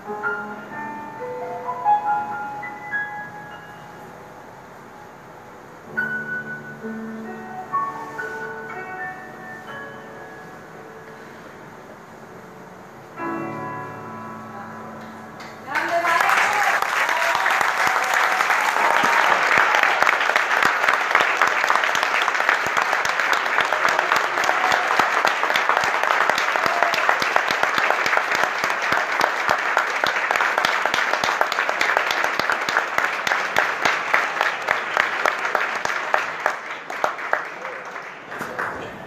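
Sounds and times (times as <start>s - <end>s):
audience applauding: 15.4s - 39.0s.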